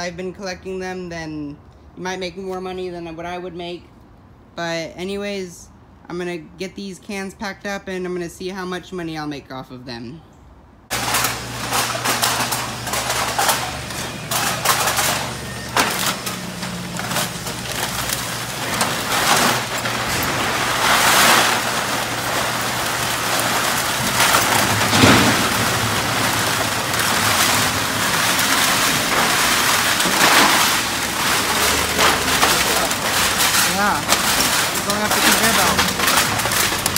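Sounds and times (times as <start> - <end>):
cans clattering into metal hopper: 10.9 - 36.9
cans rattling on conveyor: 10.9 - 36.9
machinery humming: 10.9 - 36.9.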